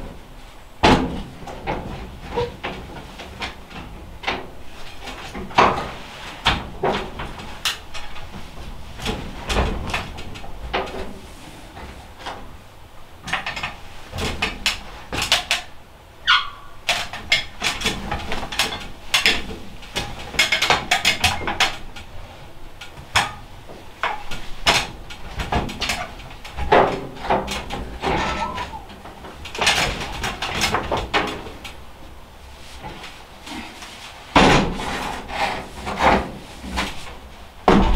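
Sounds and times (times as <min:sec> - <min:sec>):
steps on a metal stepladder: 0:00.8 - 0:12.5, 0:13.2 - 0:22.1, 0:22.8 - 0:31.8, 0:32.6 - 0:37.9.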